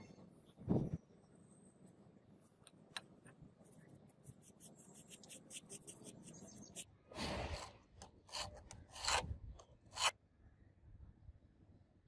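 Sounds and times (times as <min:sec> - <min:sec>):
short scraping rubs: 0:04.5 - 0:10.1.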